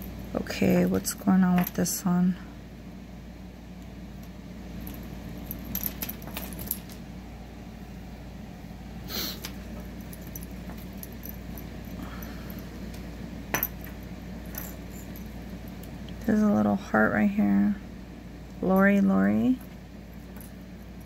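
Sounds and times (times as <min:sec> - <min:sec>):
jewelry chains clinking: 0:04.8 - 0:07.0, 0:09.3 - 0:12.9, 0:13.5 - 0:16.0.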